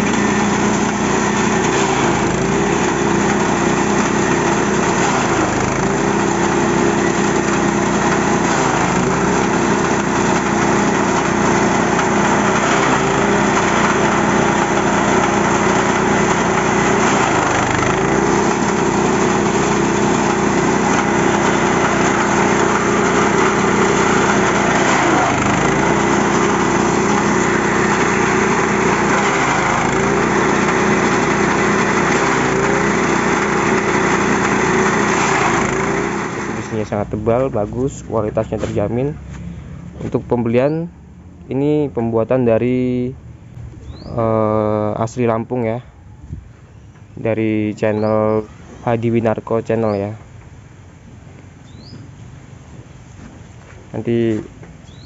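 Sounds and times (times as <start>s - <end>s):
forage chopper engine running: 0.0s - 40.2s.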